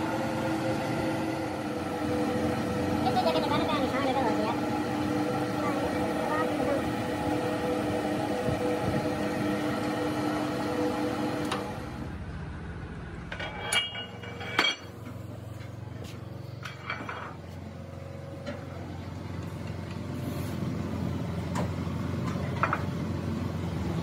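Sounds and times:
workshop machinery hum: 0.0s - 24.0s
metallic clanks of steel parts: 13.3s - 15.8s, 16.5s - 17.6s.

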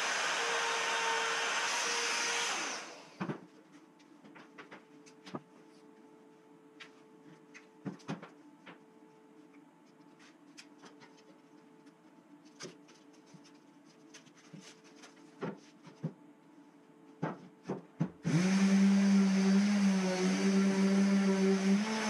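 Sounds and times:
faint steady hum: 2.9s - 18.3s.

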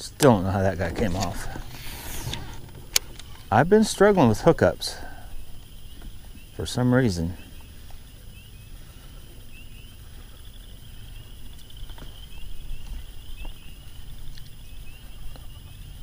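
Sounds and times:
low rumble: 0.4s - 6.6s.

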